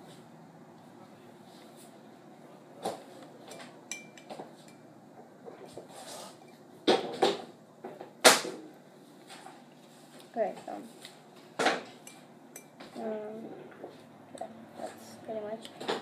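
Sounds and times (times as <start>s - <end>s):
glass ringing: 3.5s - 4.9s
metal spoon knocking against glass: 3.9s - 4.3s.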